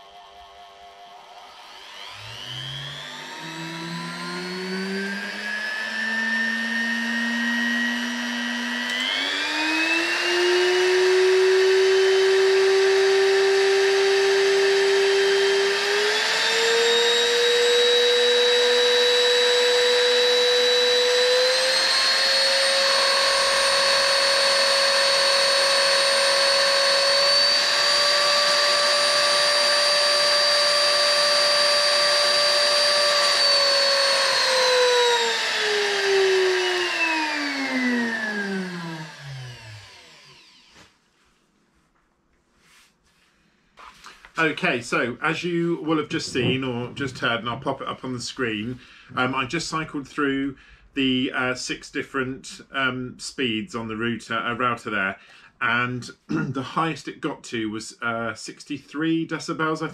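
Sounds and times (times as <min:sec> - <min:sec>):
router motor whining: 0:00.0 - 0:41.0.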